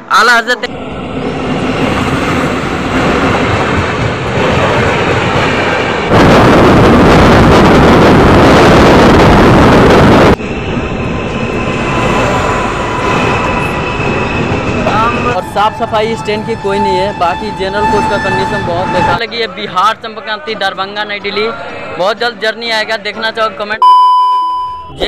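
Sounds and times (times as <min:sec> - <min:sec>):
passing train rushing: 0:00.0 - 0:23.6
train crossing steel bridge: 0:00.0 - 0:23.6
train wheels rushing and rumbling: 0:00.6 - 0:20.0.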